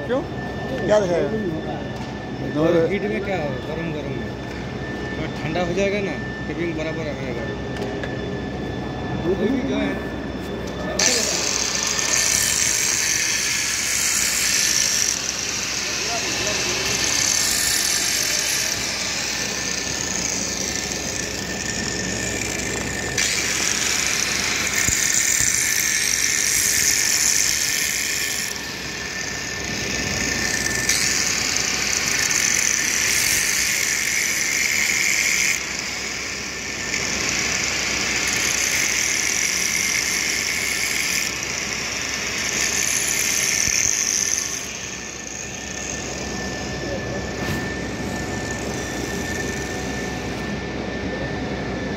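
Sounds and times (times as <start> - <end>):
angle grinder grinding steel: 10.9 - 50.6.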